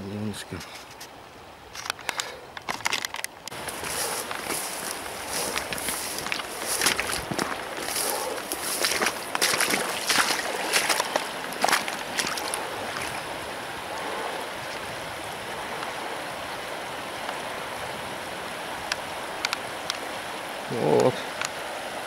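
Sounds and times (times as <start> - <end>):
river rushing: 0.0 - 22.0
footsteps: 2.7 - 13.2.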